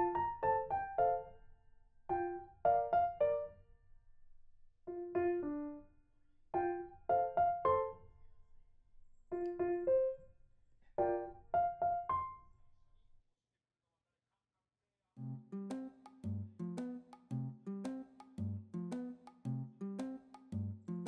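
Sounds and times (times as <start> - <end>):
piano music: 0.0 - 1.4, 2.1 - 3.5, 4.9 - 5.9, 6.6 - 8.0, 11.0 - 12.4.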